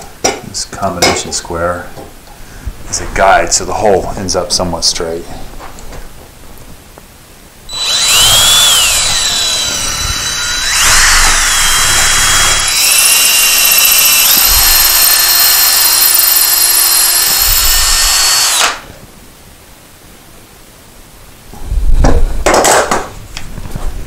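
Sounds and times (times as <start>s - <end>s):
cordless drill whining into wood: 7.7s - 18.9s.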